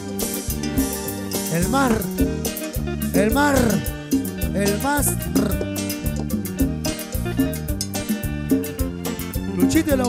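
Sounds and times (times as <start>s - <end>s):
live cumbia band playing: 0.0s - 10.0s
person calling out: 1.5s - 2.2s, 3.1s - 5.8s.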